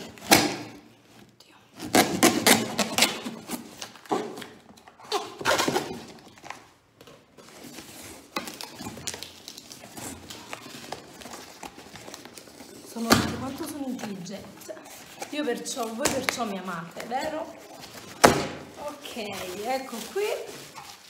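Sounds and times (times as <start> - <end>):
knife scraping tape and cardboard: 1.8 - 4.5.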